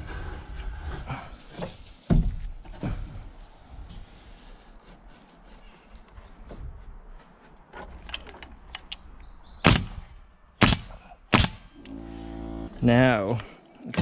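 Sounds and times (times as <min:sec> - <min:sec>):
nail gun firing: 0:09.6 - 0:10.0, 0:10.6 - 0:11.9.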